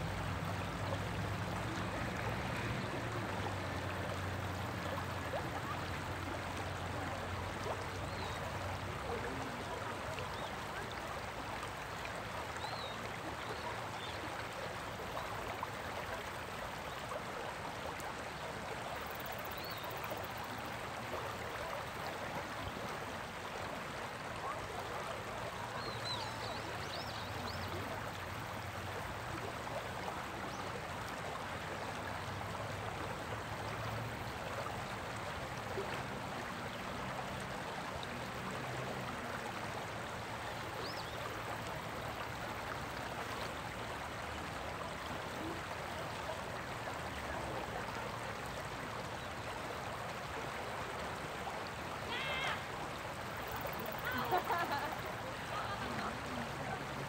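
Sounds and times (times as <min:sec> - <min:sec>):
water flowing over rocks: 0:00.0 - 0:57.0.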